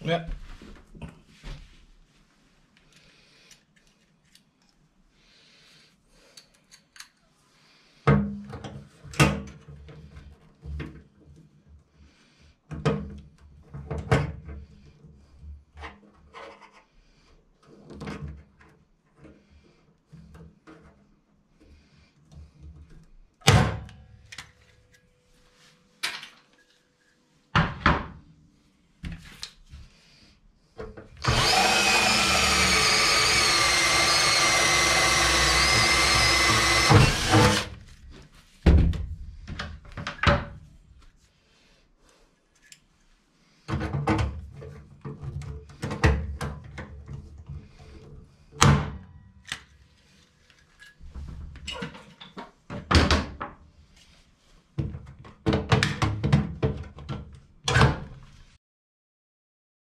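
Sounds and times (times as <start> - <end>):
cordless drill boring through metal: 31.2 - 37.8.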